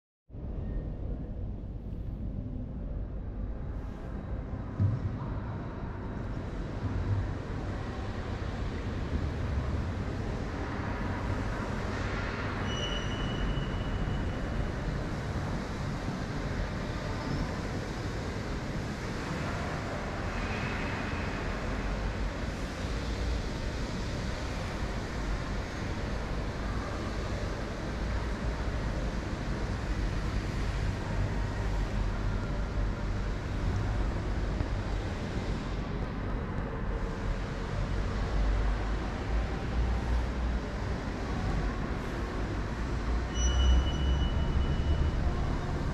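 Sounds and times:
low rumble and hiss: 0.3 - 45.9
short high squeak: 12.6 - 14.1, 43.3 - 45.1.

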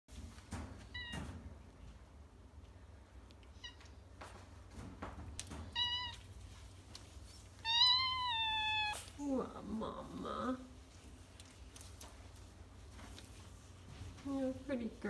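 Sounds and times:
soft knocks and rustles: 0.1 - 2.7, 3.8 - 7.6, 11.0 - 14.8
cat meowing: 5.7 - 6.3, 7.6 - 9.2.

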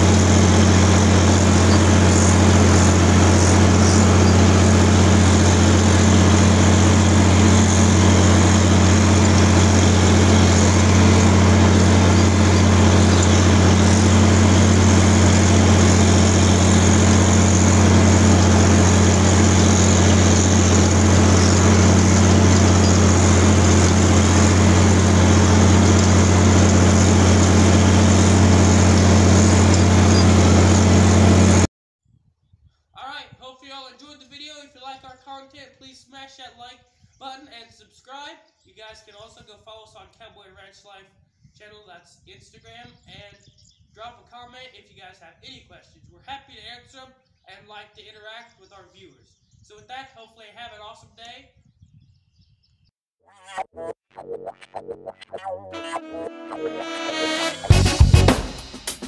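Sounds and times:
tractor diesel engine under load: 0.0 - 31.7.

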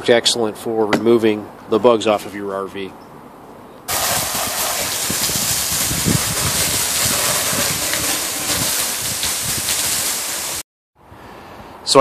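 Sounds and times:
hose water spray hissing: 3.9 - 10.6.

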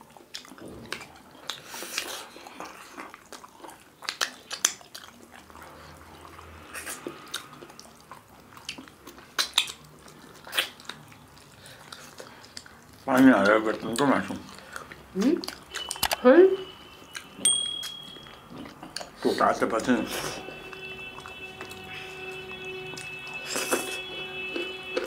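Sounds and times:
wet chewing: 0.0 - 25.0
lip smacks: 0.2 - 5.8, 6.7 - 13.0
sharp mouth clicks: 9.4 - 9.8.

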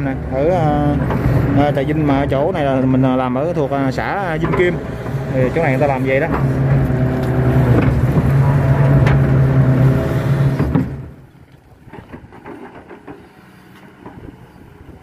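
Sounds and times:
diesel engine running under load: 0.0 - 15.0
faint distant engine hum: 0.0 - 15.0.

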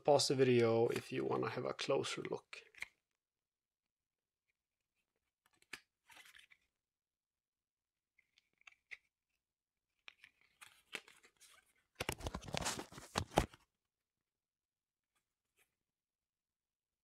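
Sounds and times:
cards sliding and clicking: 5.4 - 6.7, 10.0 - 13.6
cards rubbing and flicking: 10.1 - 13.5.

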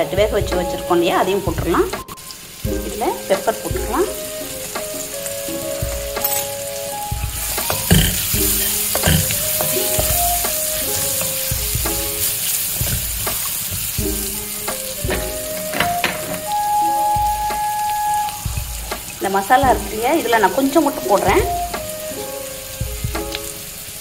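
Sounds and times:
vegetables sizzling in oil: 0.0 - 24.0
spatula scraping and knocking pan: 7.2 - 16.6.

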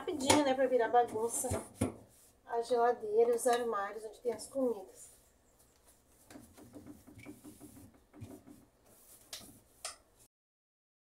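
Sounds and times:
cloth wiping plastic: 4.5 - 10.3.

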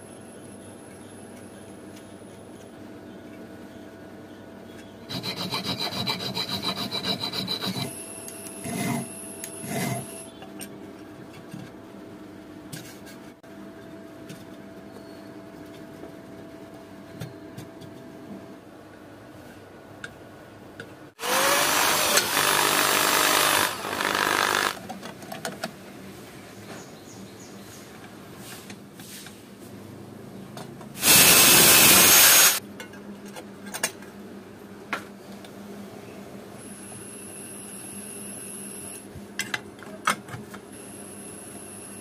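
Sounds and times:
tool rasping on material: 5.1 - 8.0, 8.6 - 10.2.

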